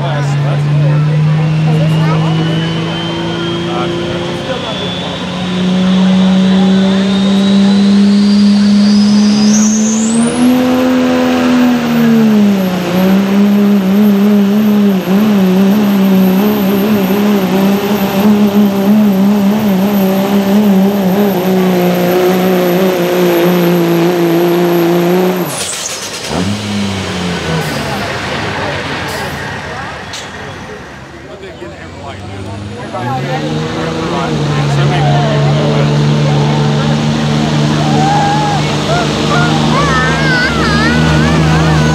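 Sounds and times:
diesel engine running under load: 0.0s - 41.9s
turbo whistle: 1.4s - 5.4s, 6.0s - 10.6s.

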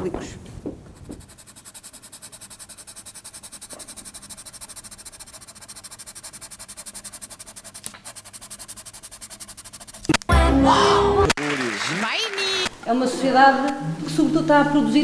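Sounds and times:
pencil scratching on paper: 0.9s - 10.2s.

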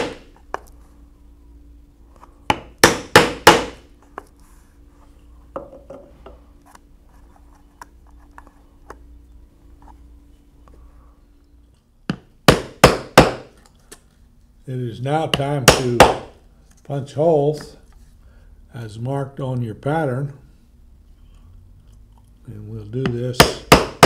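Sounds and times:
mallet striking hole punch: 0.0s - 0.3s, 2.5s - 3.8s, 12.1s - 13.5s, 15.3s - 16.3s, 23.0s - 24.0s.

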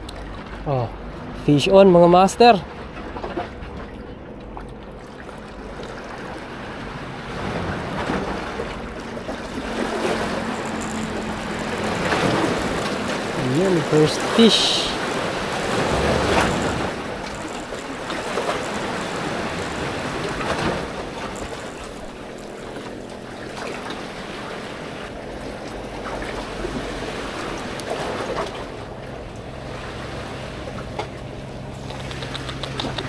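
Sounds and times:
sea washing against concrete: 5.0s - 33.0s
wind on microphone: 7.2s - 24.2s
handling clicks: 31.8s - 33.0s.

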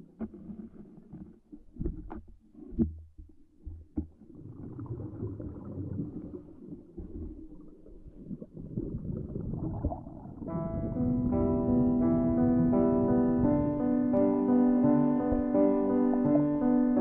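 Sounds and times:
underwater rumbling and gurgling: 0.0s - 17.0s
piano music: 10.4s - 17.0s.

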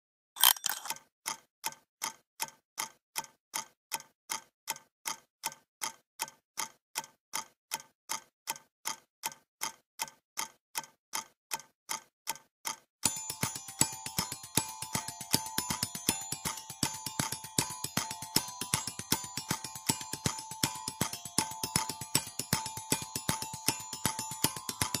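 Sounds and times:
clock-like ticking: 0.4s - 25.0s.

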